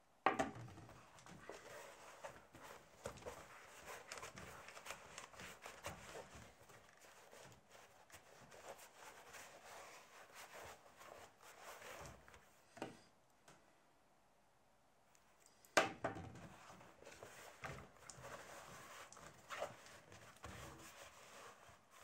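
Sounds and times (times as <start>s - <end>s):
leather rustling and tapping: 0.9s - 7.5s.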